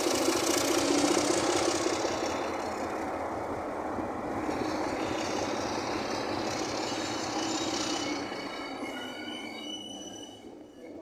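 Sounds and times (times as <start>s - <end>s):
diesel locomotive running: 0.0s - 11.0s
wheel flanges squealing: 4.4s - 11.0s.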